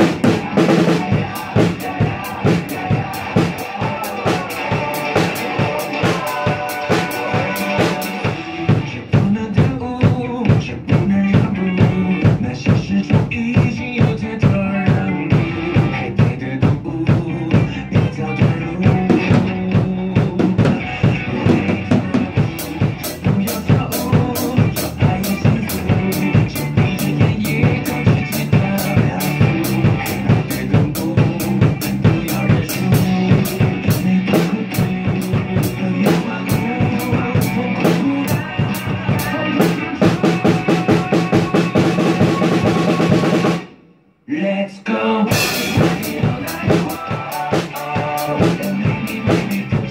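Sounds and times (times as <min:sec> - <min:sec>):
pop song playing: 0:00.0 - 0:09.6, 0:44.3 - 0:49.7.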